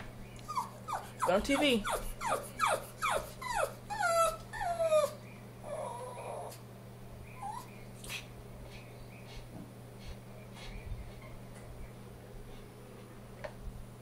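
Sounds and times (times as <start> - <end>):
dog yipping and whining: 0.4 - 6.6, 7.3 - 7.8.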